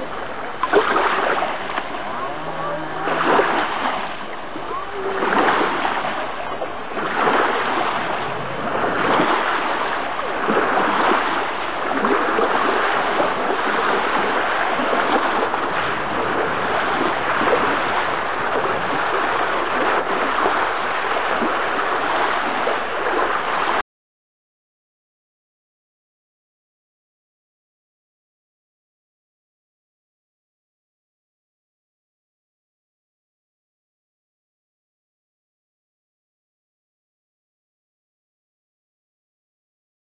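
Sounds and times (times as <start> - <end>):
river water rushing: 0.0 - 23.8
wind: 0.0 - 23.8.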